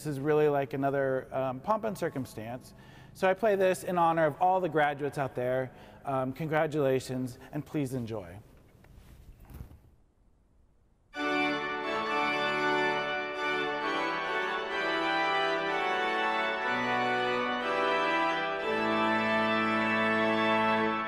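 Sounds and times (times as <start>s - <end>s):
pipe organ playing chords: 11.2s - 21.0s.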